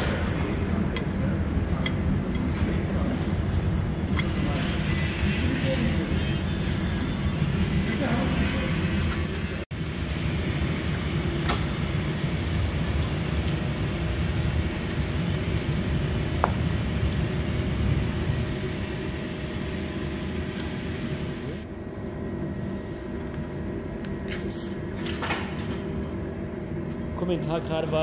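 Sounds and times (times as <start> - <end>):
low mechanical rumble: 0.0 - 28.0.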